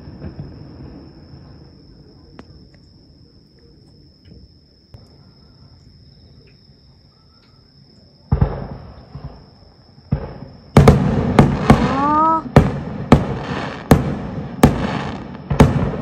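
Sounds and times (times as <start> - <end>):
firework bangs and crackles: 0.0 - 1.8, 8.3 - 16.0
firework booms: 0.0 - 1.8, 8.2 - 16.0.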